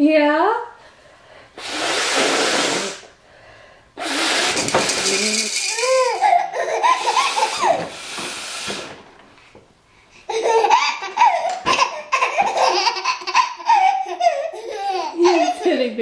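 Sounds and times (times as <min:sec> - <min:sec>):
woman blowing her nose: 0:01.6 - 0:03.2, 0:04.0 - 0:09.0
baby laughing: 0:04.6 - 0:07.9, 0:10.3 - 0:16.0.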